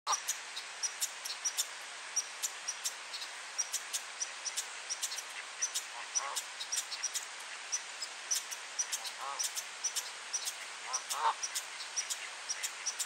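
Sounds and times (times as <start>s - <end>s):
small birds chirping: 0.1s - 13.0s
goose honking: 9.0s - 9.5s, 10.8s - 11.4s.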